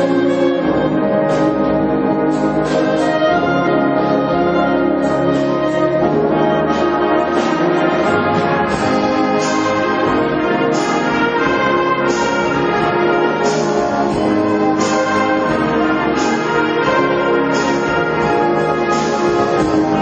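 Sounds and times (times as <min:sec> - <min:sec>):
concert band playing: 0:00.0 - 0:20.0.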